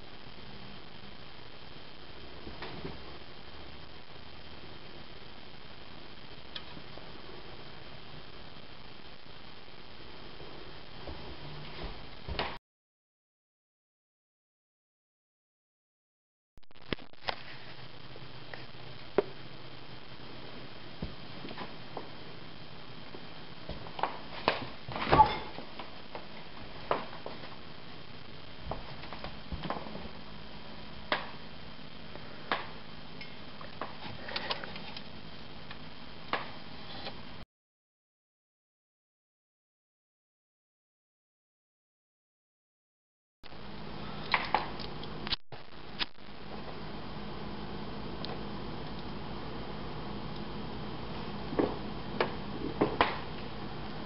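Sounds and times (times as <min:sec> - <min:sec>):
background hiss: 0:00.0 - 0:12.6
steady low hum: 0:00.0 - 0:12.6, 0:16.8 - 0:37.4, 0:43.5 - 0:54.0.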